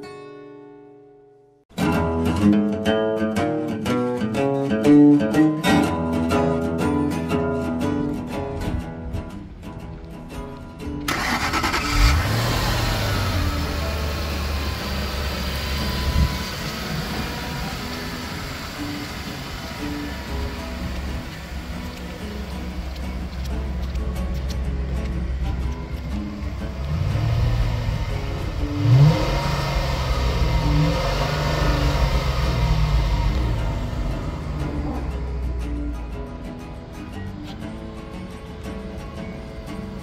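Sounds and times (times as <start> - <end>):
car engine starting and idling: 9.4 - 40.0.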